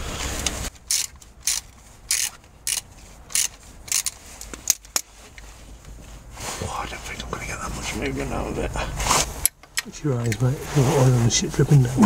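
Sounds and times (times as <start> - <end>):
socket ratchet clicking: 0.9 - 5.0.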